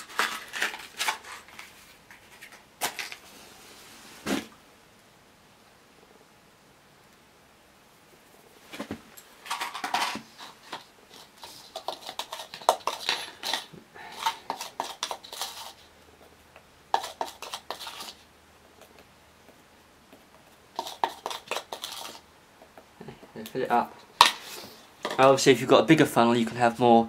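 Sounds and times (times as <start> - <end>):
plastic items clattering on concrete: 0.0 - 3.2, 9.4 - 15.7.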